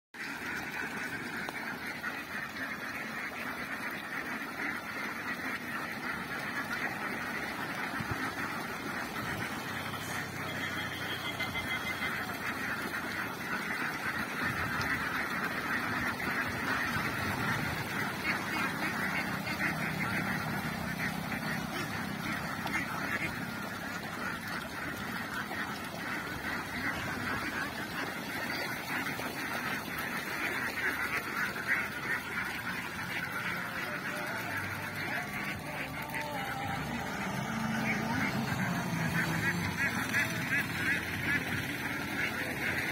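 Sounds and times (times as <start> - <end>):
flock of ducks quacking: 0.2 - 42.9.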